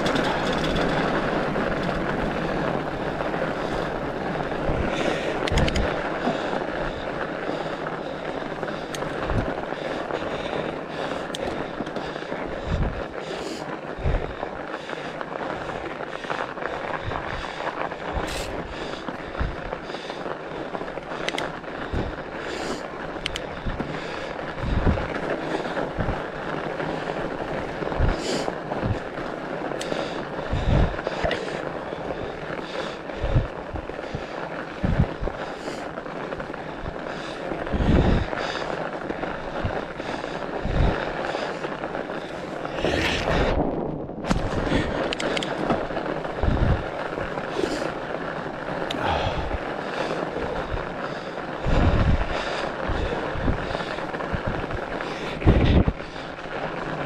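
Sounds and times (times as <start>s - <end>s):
bike thumps and rattles: 0.0s - 6.5s, 42.8s - 47.3s
tyres rolling hiss on snow: 0.0s - 43.6s, 44.2s - 57.0s.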